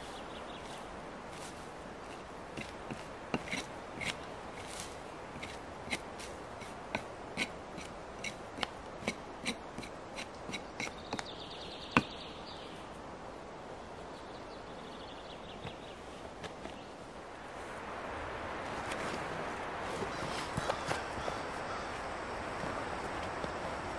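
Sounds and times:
knife scraping moss and ground: 0.7s - 11.4s.

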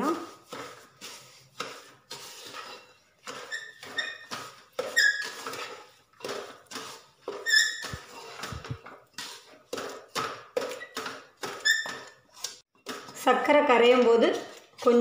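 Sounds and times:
spatula scraping wet mix: 0.0s - 15.0s
spatula squeaking on pan: 0.3s - 9.6s, 10.7s - 12.6s.

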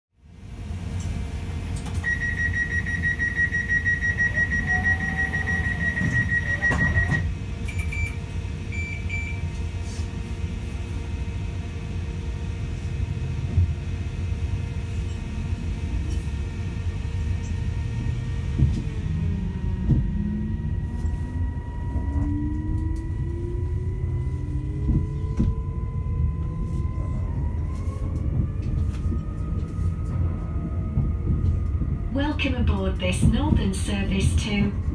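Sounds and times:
train low rumble: 0.2s - 34.9s
high warning tone: 2.0s - 9.4s, 18.4s - 27.8s
short door warning beeps: 2.0s - 9.4s
traction motor whine: 3.5s - 7.3s, 16.5s - 32.9s.

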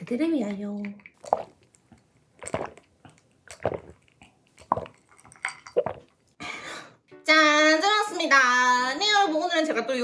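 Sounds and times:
person gulping loud swallows: 1.2s - 6.4s.

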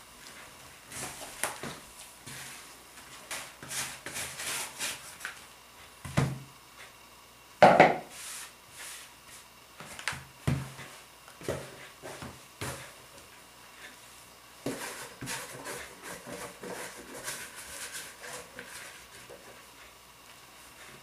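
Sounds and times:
plastic bowl knocking on table: 7.6s - 8.0s.

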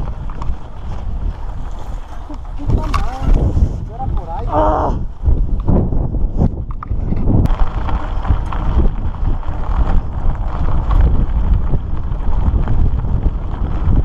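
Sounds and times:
bike tyre rumble: 0.0s - 14.0s
wind buffeting microphone: 0.0s - 14.0s.

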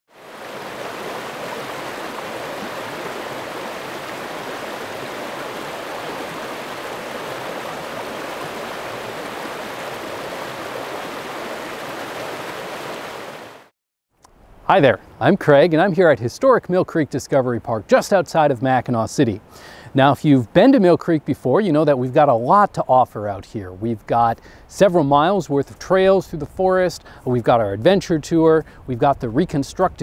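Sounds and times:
rushing creek water: 0.1s - 13.7s.

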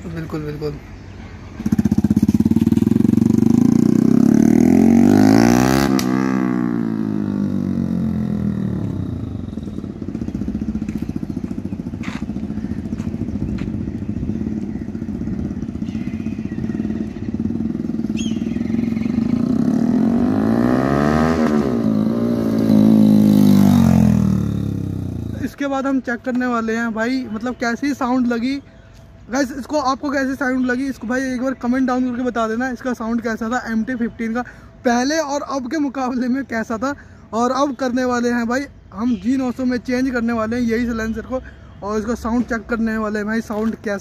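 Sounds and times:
motorcycle engine passing by: 1.5s - 25.6s.

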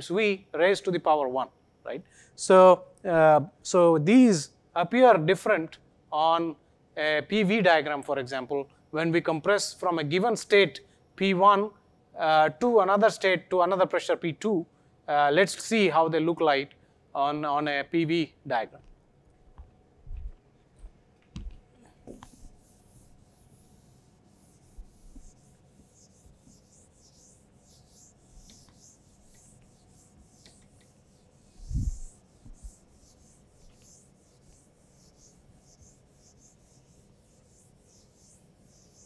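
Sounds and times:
eraser rubbing on whiteboard: 21.9s - 39.0s.

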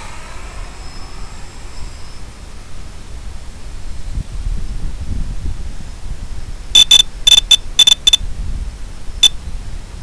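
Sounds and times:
wind rumble: 0.0s - 10.0s
short high electronic beeps: 6.8s - 8.2s.

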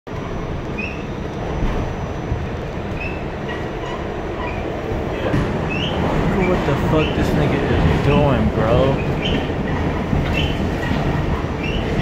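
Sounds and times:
subway train wheels rumbling: 0.1s - 12.0s
high squeaks from train car: 0.8s - 2.1s, 2.9s - 7.4s, 8.7s - 12.0s.

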